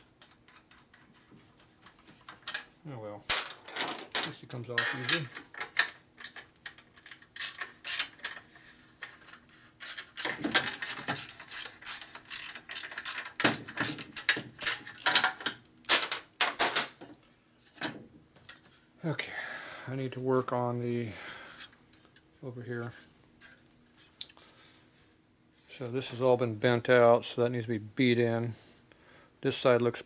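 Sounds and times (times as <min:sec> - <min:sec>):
ratchet wrench clicking: 0:07.4 - 0:08.1, 0:09.8 - 0:15.2.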